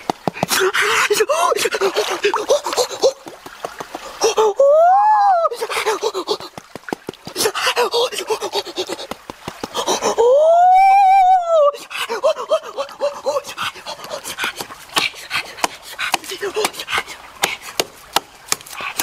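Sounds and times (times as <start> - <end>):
person exclaiming in wonder: 4.3 - 5.6, 10.2 - 13.5.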